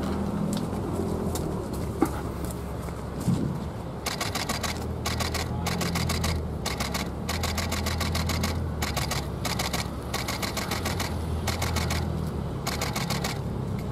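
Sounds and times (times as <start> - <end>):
camera shutters clicking in bursts: 4.0 - 13.9.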